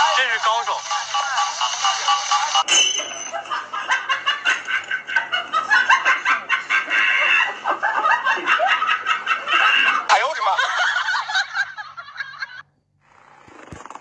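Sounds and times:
rapid cackling sound effect: 0.0 - 2.6.

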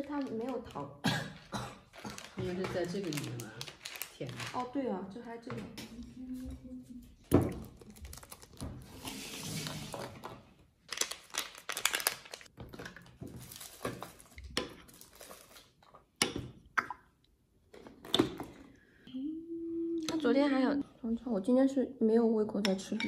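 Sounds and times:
plastic packaging crinkling: 0.0 - 0.9, 1.9 - 4.9, 7.6 - 10.1, 10.9 - 15.8.

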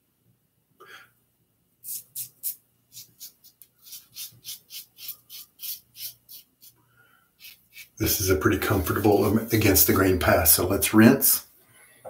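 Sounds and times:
razor scraping stubble: 1.8 - 6.8, 7.4 - 10.1.

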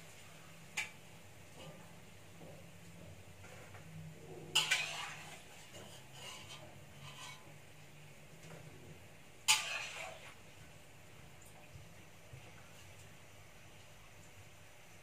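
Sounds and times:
metal ladle clanking on wok: 4.5 - 5.4.

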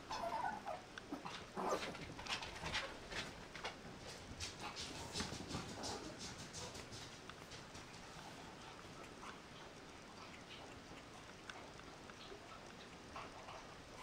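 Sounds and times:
puppy whimpering: 0.1 - 1.8
rustling and scratching on cushion: 1.1 - 9.8.

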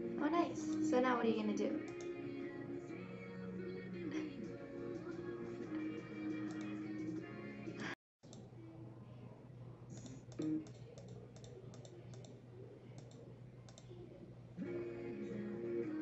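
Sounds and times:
background music: 0.0 - 8.0, 14.6 - 16.0.

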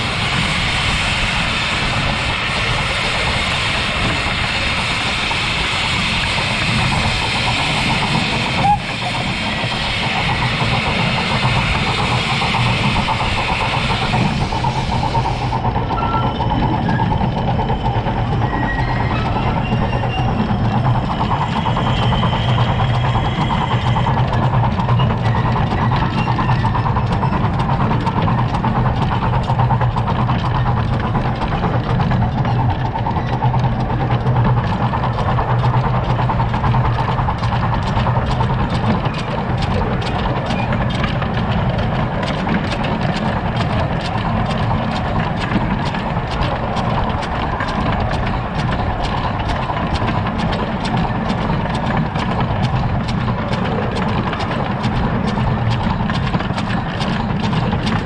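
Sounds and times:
high steam hiss: 0.0 - 15.8
steam locomotive running rumble: 0.0 - 58.0
wheels clattering on rail: 0.0 - 58.0.

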